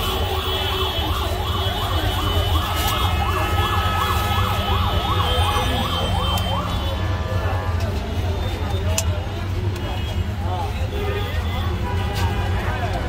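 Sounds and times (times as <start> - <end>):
low street rumble: 0.0 - 13.0
electronic siren warbling: 1.1 - 6.9.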